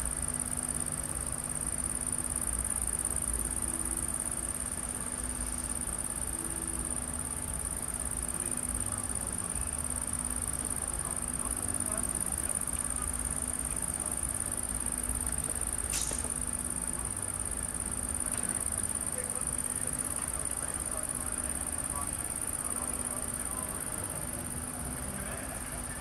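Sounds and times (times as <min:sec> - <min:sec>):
night insects chirring: 0:00.0 - 0:26.0
short sharp click: 0:15.9 - 0:16.4.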